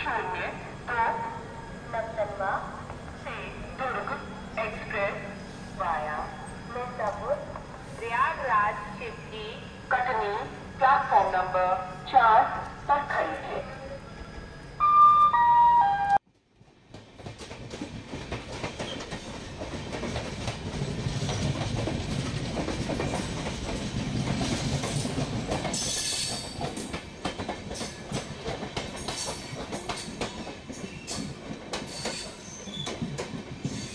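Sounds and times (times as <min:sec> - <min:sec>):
train wheels rumbling on rails: 0:16.4 - 0:33.9.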